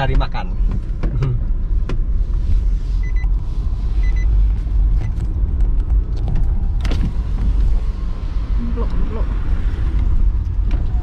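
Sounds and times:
road and engine noise in car: 0:00.0 - 0:11.0
short high beeps: 0:03.0 - 0:03.3, 0:04.0 - 0:04.3.

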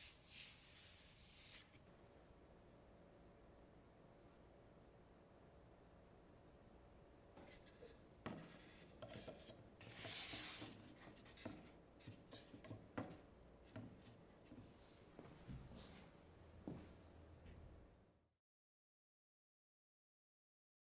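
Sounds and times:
wooden plate scraping on table: 0:07.4 - 0:13.2
wood knocking on wood: 0:10.3 - 0:14.0.

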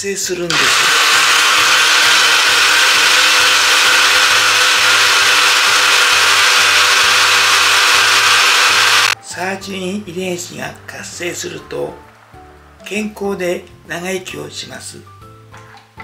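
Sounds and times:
blender motor whirring: 0:00.5 - 0:09.2.

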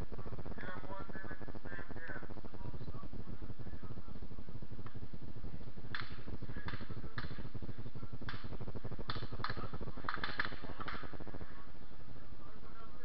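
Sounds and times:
low rumble: 0:00.0 - 0:13.0
distant gunshots: 0:05.9 - 0:11.4.

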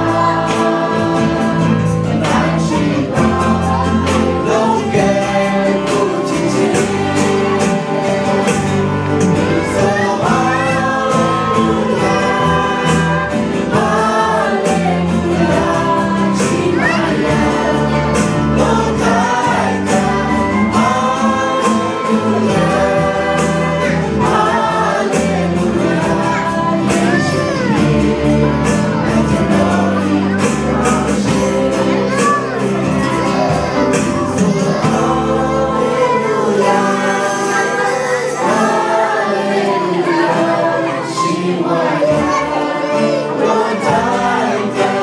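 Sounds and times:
acoustic guitar: 0:00.0 - 0:45.0
group singing into microphones: 0:00.0 - 0:45.0
keyboard: 0:00.0 - 0:45.0.

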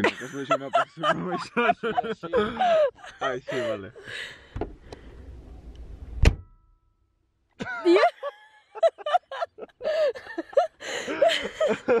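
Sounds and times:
voices: 0:00.0 - 0:04.0
sharp thump: 0:06.2 - 0:06.6.

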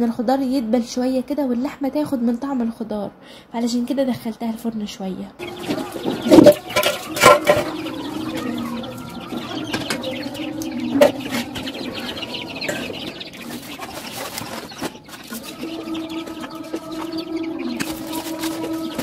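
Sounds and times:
chicks peeping and chirping: 0:05.4 - 0:19.0.

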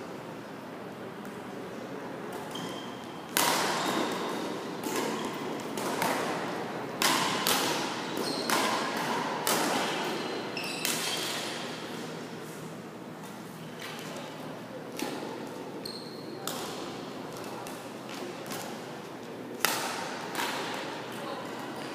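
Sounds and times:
rackets hitting shuttlecock: 0:02.3 - 0:12.1, 0:16.4 - 0:18.9, 0:19.6 - 0:21.7.

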